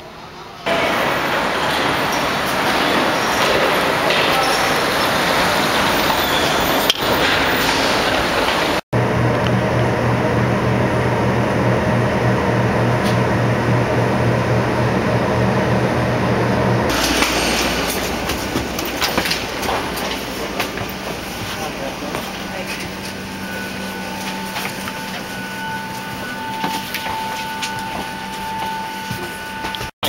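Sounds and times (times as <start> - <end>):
wheeled bag rolling: 16.9 - 29.8.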